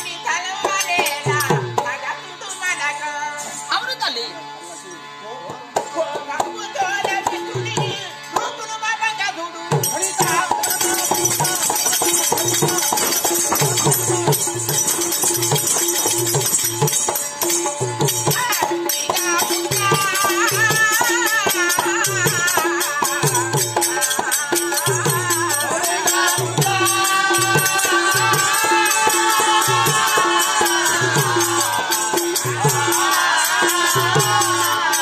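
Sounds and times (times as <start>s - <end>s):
sustained harmonium notes: 0.0s - 35.0s
hand drum rhythm: 9.7s - 35.0s
person singing: 18.3s - 35.0s.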